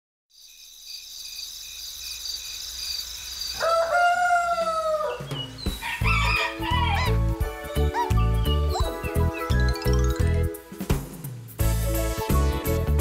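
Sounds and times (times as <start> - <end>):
rooster crowing: 3.6 - 7.2
children's music with bass beat: 5.4 - 13.0.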